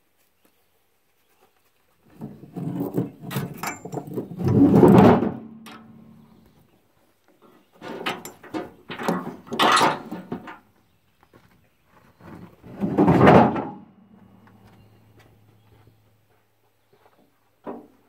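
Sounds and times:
rubber hoses and metal fittings clattering: 2.1s - 6.4s, 7.8s - 10.6s.

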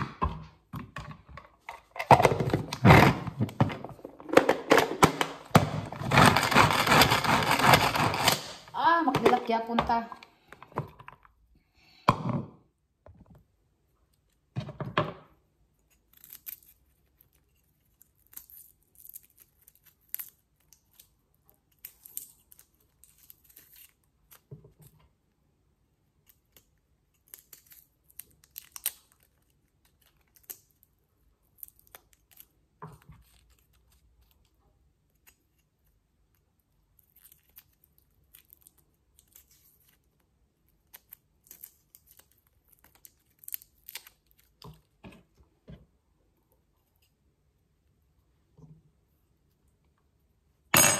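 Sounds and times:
garlic skin crackling and tearing: 15.7s - 24.8s, 26.2s - 44.9s.

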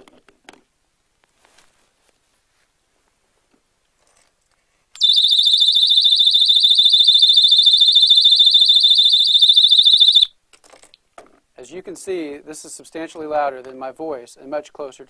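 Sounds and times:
shrill pulsing alarm tone: 5.0s - 10.3s.

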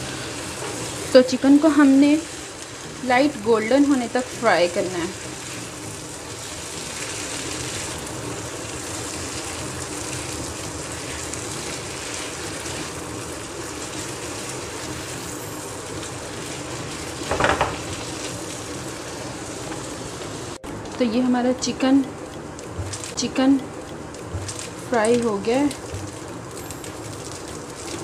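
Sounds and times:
chicken sizzling in a pan: 0.0s - 20.6s.

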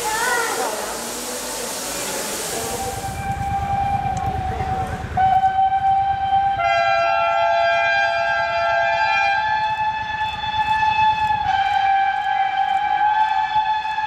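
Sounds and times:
steam locomotive whistles: 0.0s - 14.0s
low rumble: 2.6s - 6.6s.

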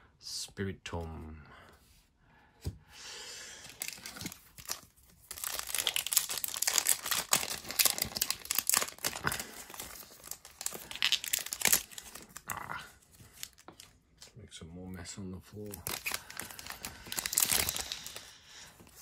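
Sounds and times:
foil wrapper crinkling: 3.7s - 12.5s, 13.2s - 14.0s, 15.6s - 18.3s.

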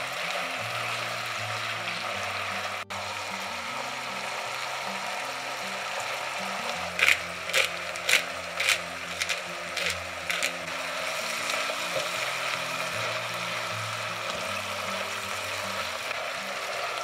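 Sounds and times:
background music: 0.0s - 17.0s
crisp kitchen chopping strokes: 6.6s - 10.8s.

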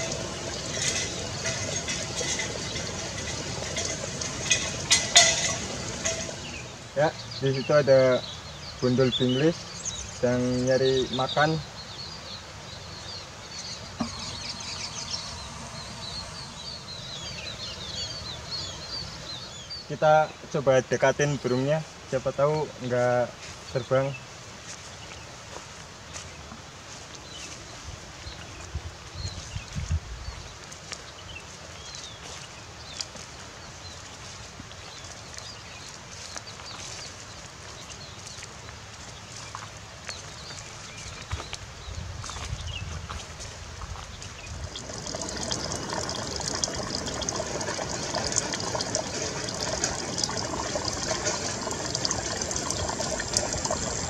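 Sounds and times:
small birds chirping: 0.0s - 23.0s, 27.2s - 43.2s, 43.9s - 54.0s
steady outdoor hiss: 0.0s - 54.0s
finches chirping: 13.0s - 19.8s
footsteps crunching on straw: 24.6s - 44.7s.

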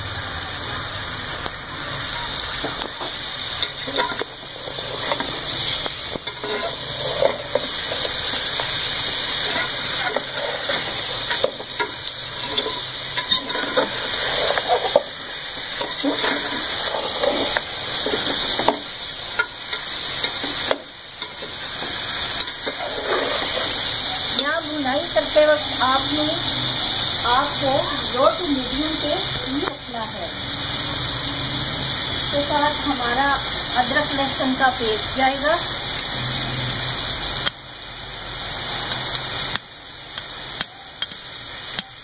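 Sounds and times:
meat sizzling in a pot: 0.0s - 42.0s
metal spatula scraping: 3.6s - 24.3s.

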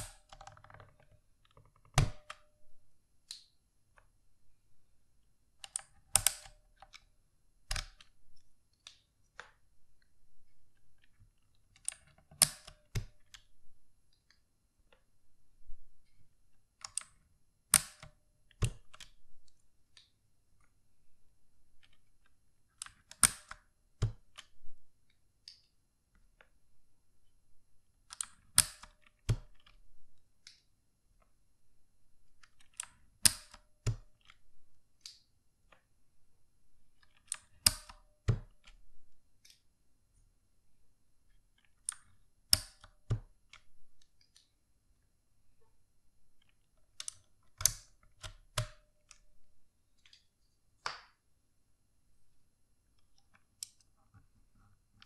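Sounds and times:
keycaps snapping off switches: 37.2s - 38.8s.

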